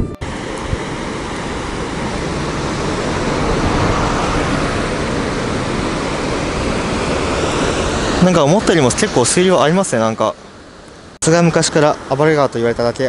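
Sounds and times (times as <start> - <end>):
river rapids rushing over rocks: 0.2 - 9.6.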